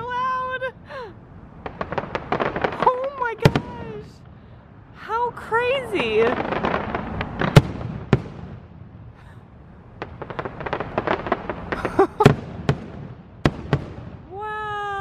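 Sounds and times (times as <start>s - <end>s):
fireworks crackling pops: 1.6s - 4.4s, 5.8s - 9.4s, 10.0s - 14.6s.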